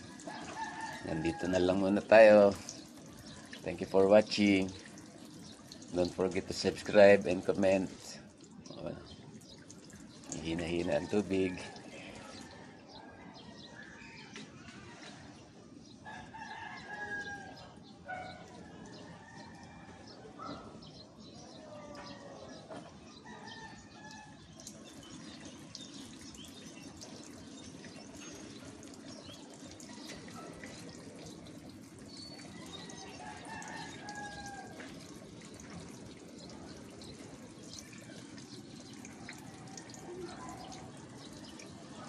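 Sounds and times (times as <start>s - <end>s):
water spray pattering on leaves: 0.0s - 12.6s, 24.4s - 42.0s
rooster crowing: 16.0s - 17.7s, 32.6s - 34.9s.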